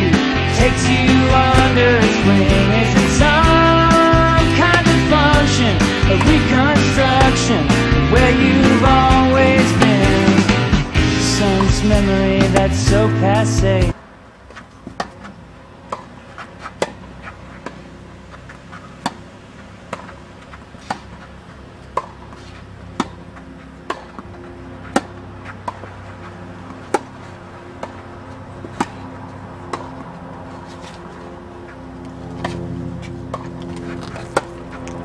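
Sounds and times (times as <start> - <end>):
tennis ball hit by rackets: 1.1 - 12.8, 14.5 - 17.9, 18.5 - 19.3, 19.9 - 21.3, 21.9 - 25.9, 26.7 - 27.2, 28.6 - 29.1, 29.7 - 30.1, 34.1 - 34.6.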